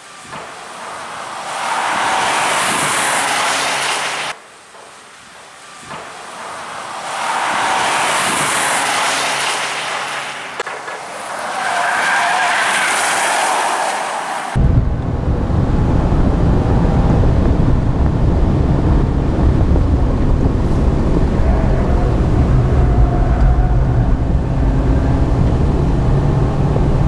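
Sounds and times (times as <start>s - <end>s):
cars driving past at speed: 0.6s - 4.4s, 6.6s - 14.6s.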